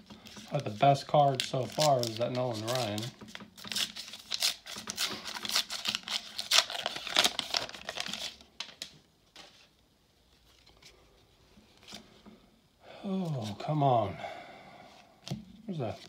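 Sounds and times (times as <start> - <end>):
foil wrapper tearing and crinkling: 0.6 - 8.9.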